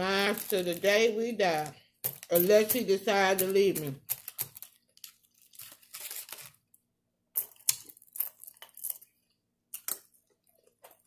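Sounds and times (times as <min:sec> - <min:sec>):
crunchy chewing of chips: 0:07.4 - 0:11.0.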